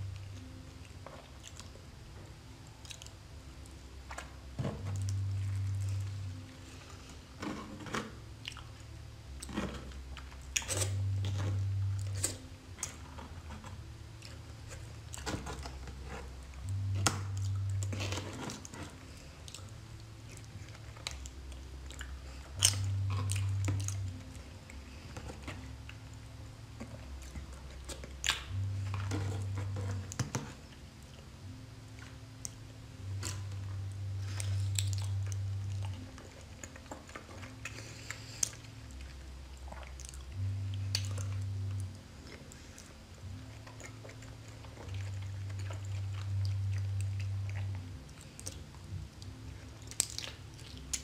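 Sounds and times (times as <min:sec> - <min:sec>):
low tone alternating pitches: 0:00.0 - 0:51.0
close-miked chewing: 0:00.1 - 0:31.3, 0:31.9 - 0:51.0
mouth clicks and smacks: 0:49.9 - 0:51.0.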